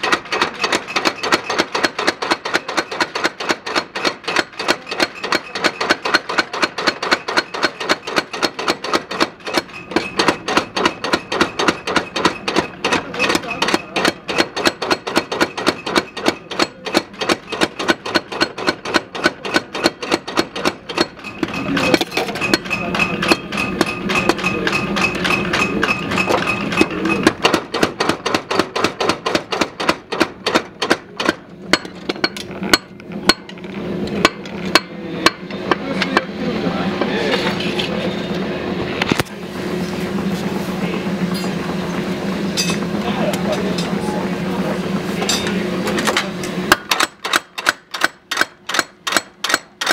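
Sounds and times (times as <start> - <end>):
power hammer pounding steel: 0.0 - 36.3, 45.2 - 49.9
steady hum: 0.0 - 49.8.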